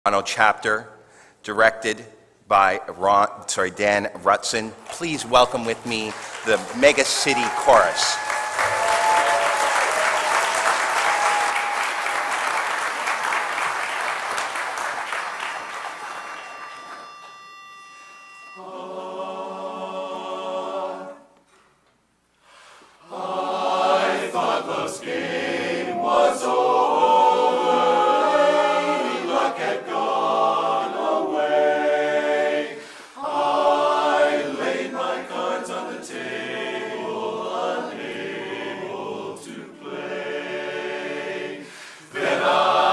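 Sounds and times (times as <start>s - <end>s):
audience applause: 4.8s - 17.6s
steady high tone: 15.0s - 21.2s
barbershop chorus singing a cappella: 18.5s - 21.4s, 23.0s - 42.9s.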